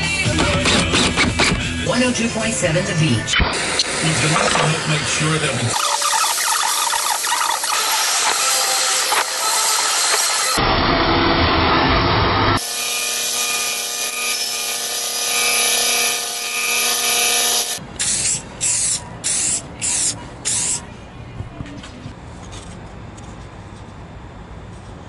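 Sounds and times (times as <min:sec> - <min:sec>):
spray paint can hissing: 0:18.0 - 0:20.8.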